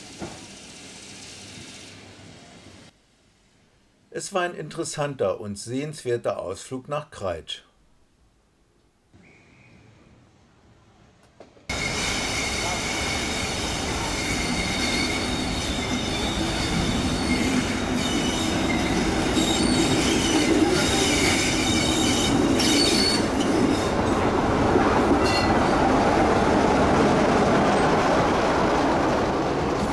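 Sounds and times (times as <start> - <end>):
tram wheels squealing: 11.7 - 24.2, 25.0 - 26.1
rumbling rolling noise: 23.9 - 29.9.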